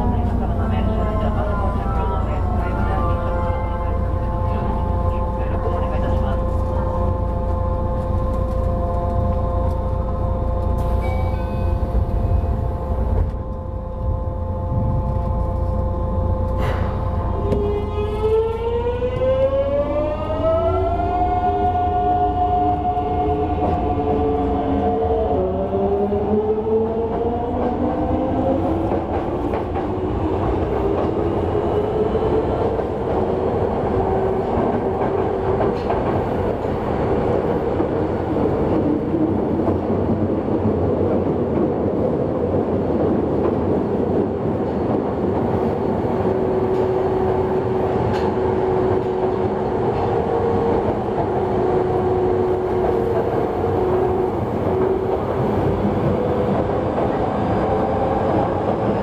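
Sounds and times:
train wheels on rails: 0:22.9 - 0:59.0.

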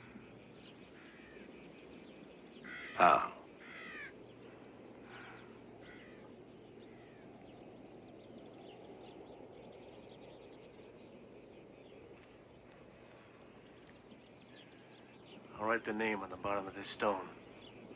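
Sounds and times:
faint high chirps and ticks: 0:00.0 - 0:17.9
low hiss: 0:00.0 - 0:17.9
crow cawing: 0:00.9 - 0:01.7, 0:02.6 - 0:07.3.

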